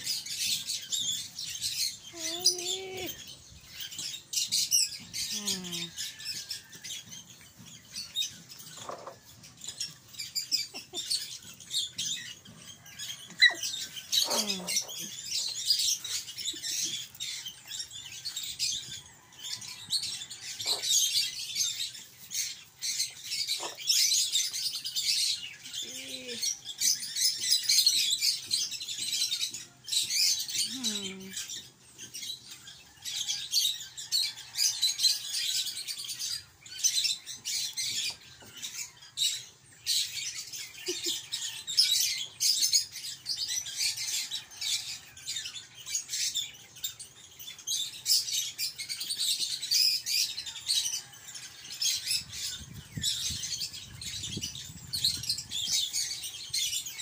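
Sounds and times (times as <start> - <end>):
puppies chirping: 0.0 - 6.0, 7.8 - 18.0, 20.5 - 21.8, 22.5 - 24.6
puppy whining: 2.1 - 3.2, 13.3 - 15.1.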